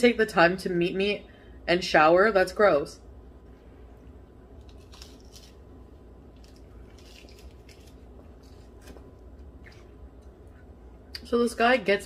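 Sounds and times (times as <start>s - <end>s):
low room hum: 0.0s - 12.0s
person chewing food: 4.5s - 10.7s.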